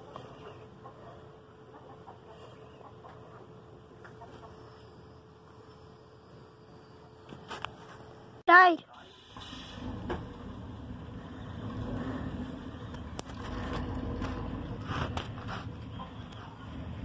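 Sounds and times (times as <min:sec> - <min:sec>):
van engine rumbling: 0:09.0 - 0:17.0
short scrapes and clicks: 0:13.1 - 0:15.8.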